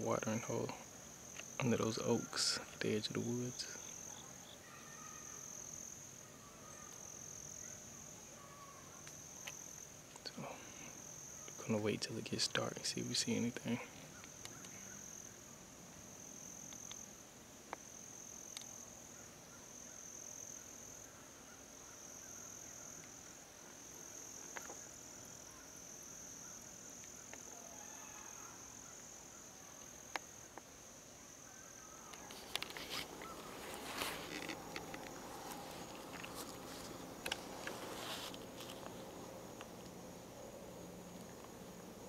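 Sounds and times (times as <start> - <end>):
crickets chirping: 0.0 - 42.0
camera handling rustling and knocks: 32.2 - 38.9.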